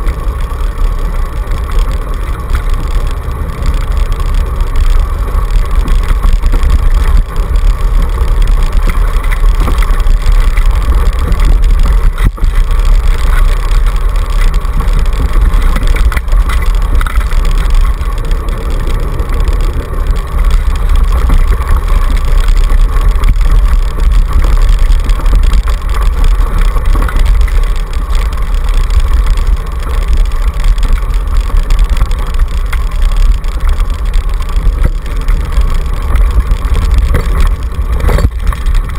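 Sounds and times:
scooter rumbling over dirt trail: 0.0s - 38.9s.

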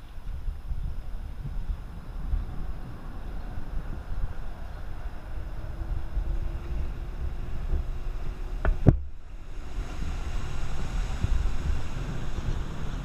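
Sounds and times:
outboard motor whine: 0.0s - 13.0s
wind rumble on microphone: 0.0s - 13.0s.

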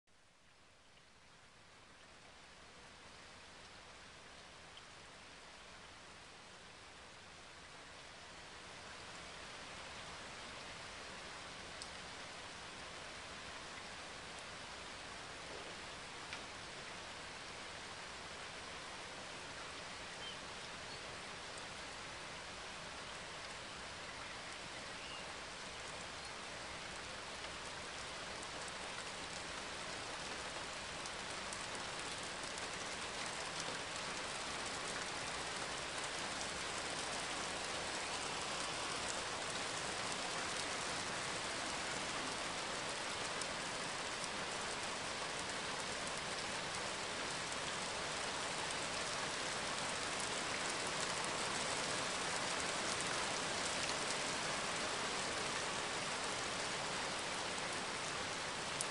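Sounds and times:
steady rain hiss: 0.1s - 58.9s
raindrops ticking: 11.7s - 12.1s, 25.4s - 58.9s.

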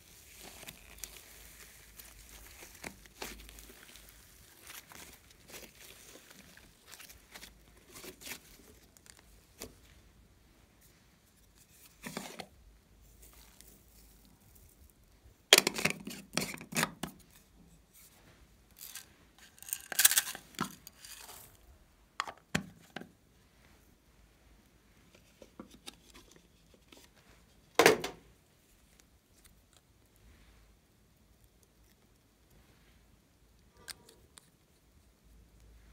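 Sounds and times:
crackly tearing bursts: 0.0s - 9.4s, 18.7s - 21.7s
hands squishing slime: 0.1s - 9.4s.

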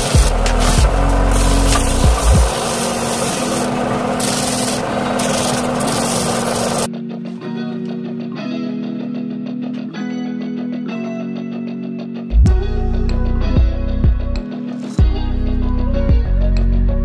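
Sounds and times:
sanding rasping: 0.0s - 6.9s
guitar music: 0.0s - 17.0s.

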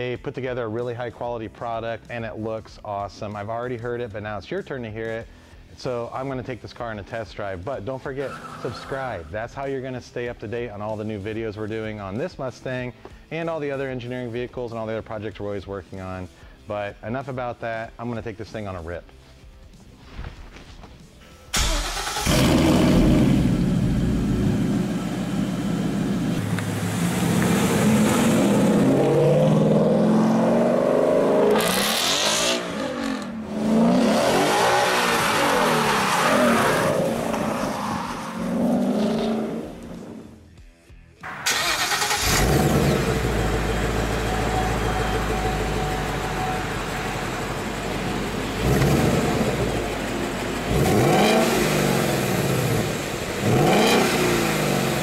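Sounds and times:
car engine idling: 21.5s - 30.7s, 41.3s - 55.0s
car engine revving hard: 21.6s - 37.7s, 38.4s - 39.7s, 41.6s - 45.9s, 46.5s - 55.0s.

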